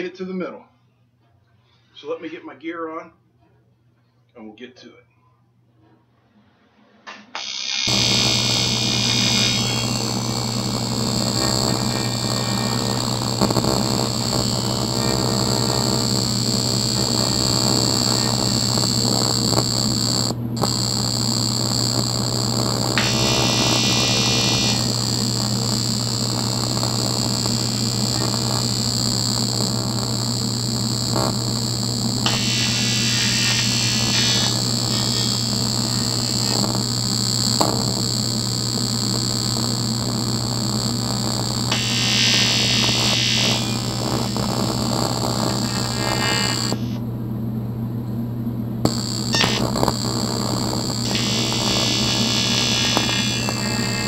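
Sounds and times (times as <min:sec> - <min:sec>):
welding arc buzzing: 0:07.3 - 0:47.0, 0:48.8 - 0:54.0.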